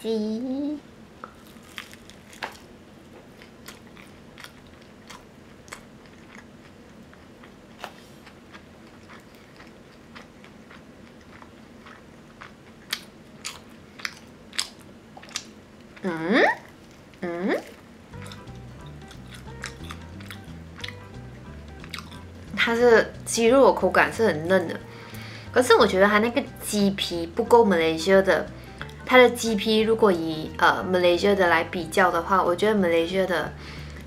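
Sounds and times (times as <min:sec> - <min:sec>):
chewing fried chicken: 0:01.2 - 0:22.6.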